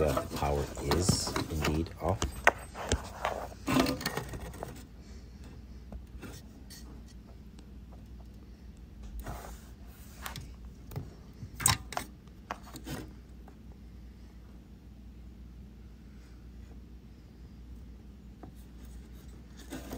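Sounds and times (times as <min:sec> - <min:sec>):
plastic housing and wires rubbing: 0:00.0 - 0:04.9.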